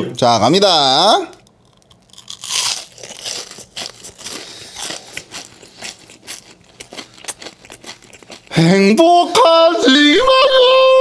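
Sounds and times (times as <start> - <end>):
chewing crispy fried shrimp: 1.3 - 9.0.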